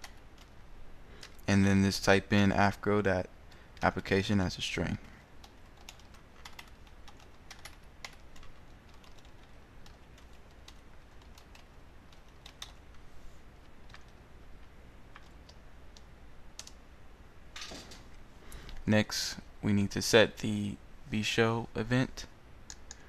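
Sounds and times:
computer keyboard typing: 0.0s - 0.6s, 5.4s - 13.0s, 13.6s - 14.2s, 15.1s - 16.8s.

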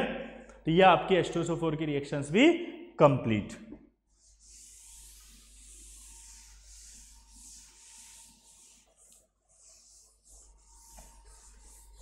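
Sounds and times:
cloth wiping chalkboard: 4.0s - 12.0s.

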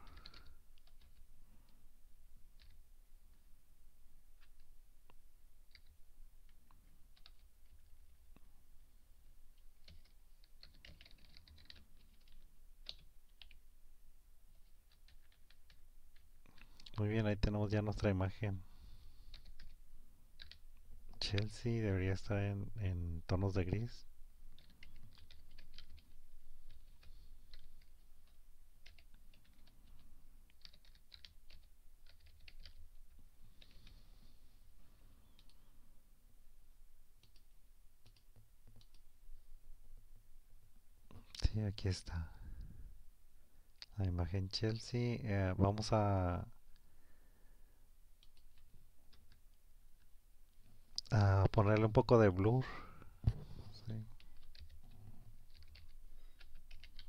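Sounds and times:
faint keyboard typing: 0.0s - 1.8s, 2.5s - 3.5s, 4.3s - 8.5s, 9.5s - 13.7s, 14.5s - 18.2s, 19.1s - 19.8s, 20.4s - 21.8s, 23.3s - 34.1s, 34.8s - 35.9s, 37.2s - 39.2s, 48.2s - 57.0s.

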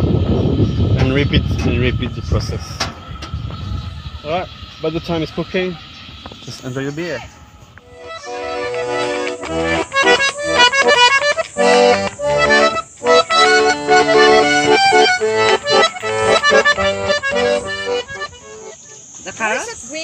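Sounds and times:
accordion tune: 7.8s - 19.8s.

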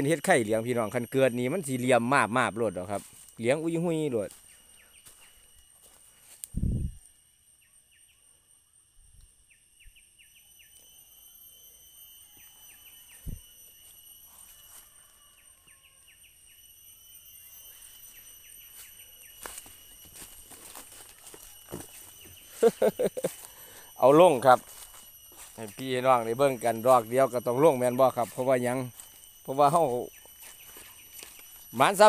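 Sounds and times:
insects trilling: 0.0s - 32.0s
footsteps in dry leaves: 3.0s - 6.9s, 18.1s - 32.0s.

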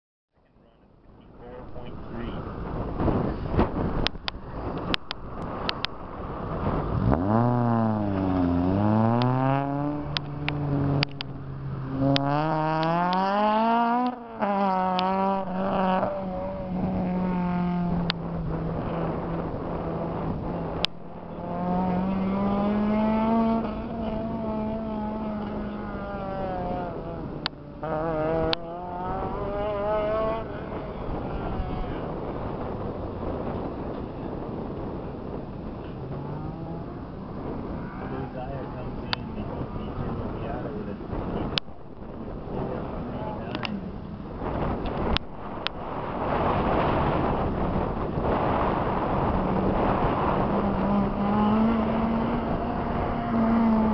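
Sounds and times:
car engine revving: 1.2s - 53.9s
sharp clicks: 4.0s - 6.0s, 10.1s - 11.3s.

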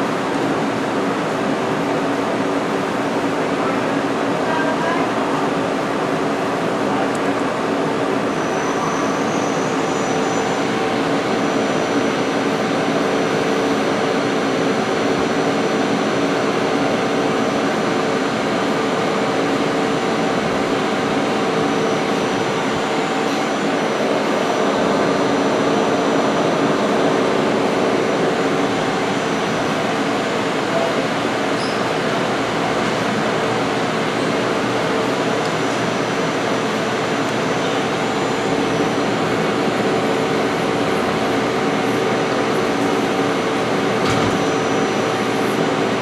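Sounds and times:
lathe mechanical whir and hiss: 0.0s - 46.0s
faint high whine: 7.1s - 15.8s.

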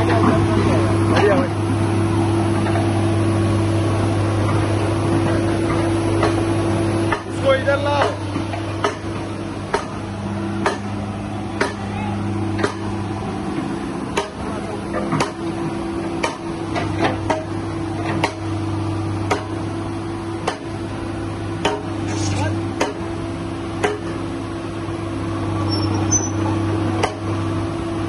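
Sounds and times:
excavator diesel engine running: 0.0s - 28.0s
sharp metallic knocks: 7.9s - 9.1s, 9.7s - 10.0s, 10.6s - 10.9s, 21.6s - 21.9s, 22.8s - 23.1s, 23.8s - 24.2s.

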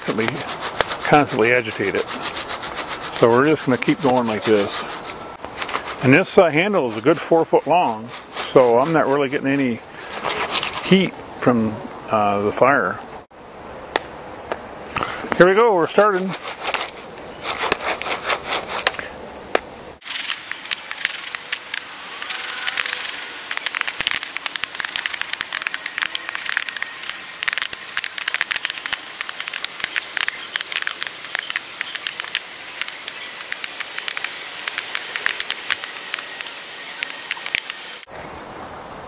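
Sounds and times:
popcorn popping: 20.0s - 38.0s
pan being shaken: 20.1s - 37.7s.

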